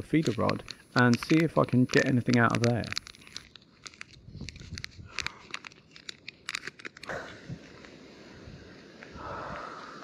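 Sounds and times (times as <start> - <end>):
plastic packet crinkling: 0.0 - 7.1
steady outdoor hiss: 0.0 - 10.0.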